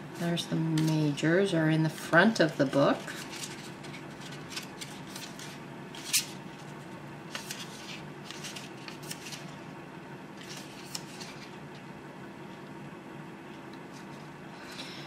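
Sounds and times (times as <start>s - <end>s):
book pages flipping: 2.9s - 9.6s, 10.4s - 11.8s.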